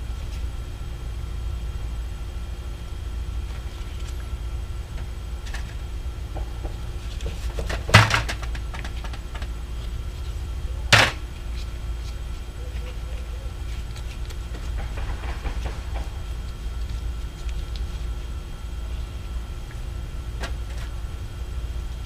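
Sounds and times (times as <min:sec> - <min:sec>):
steady low hum: 0:00.0 - 0:22.0
sharp knocks: 0:14.5 - 0:16.2.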